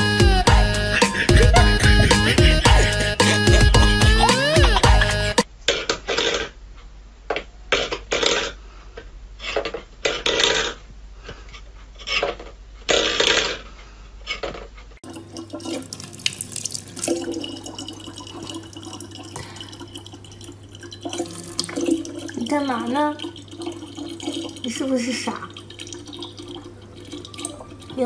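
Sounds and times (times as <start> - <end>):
water running: 0.0 - 5.5, 15.0 - 28.0
steady low hum: 0.2 - 5.4
water splashing: 15.0 - 28.0.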